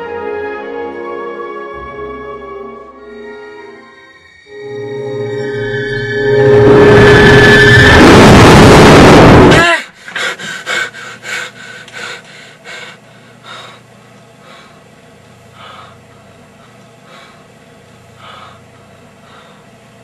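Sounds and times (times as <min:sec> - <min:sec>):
loud rushing noise: 0:04.6 - 0:09.6
person panting heavily: 0:09.8 - 0:14.8, 0:15.5 - 0:17.5, 0:18.2 - 0:19.7.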